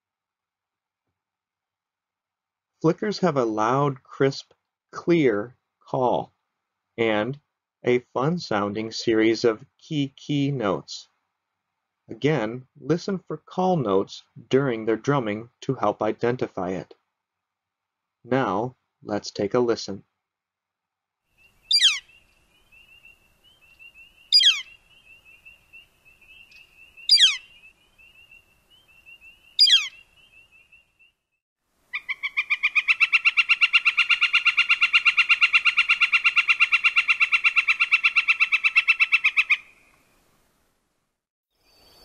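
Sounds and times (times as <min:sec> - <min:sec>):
rapid bird call series: 0:21.5 - 0:22.2, 0:22.8 - 0:30.3, 0:31.9 - 0:39.8
bird kleer calls: 0:21.5 - 0:23.1, 0:23.8 - 0:30.4, 0:31.9 - 0:39.8.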